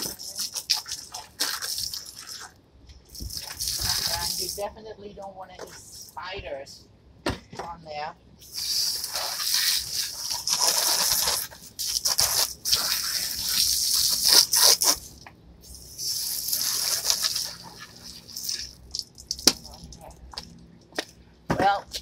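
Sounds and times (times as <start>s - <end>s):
hose nozzle spraying water: 0.0s - 2.5s, 3.1s - 4.6s, 8.4s - 20.0s.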